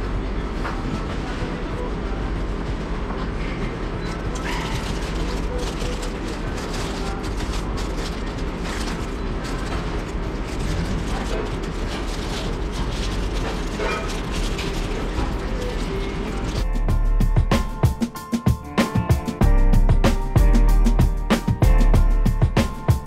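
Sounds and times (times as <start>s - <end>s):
paper wrapper crinkling: 4.3s - 16.7s.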